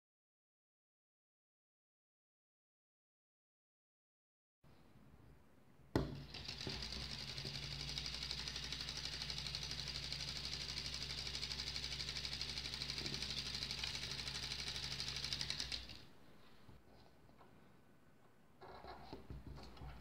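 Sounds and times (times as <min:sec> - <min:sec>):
solenoid engine clicking rapidly: 0:06.2 - 0:16.1.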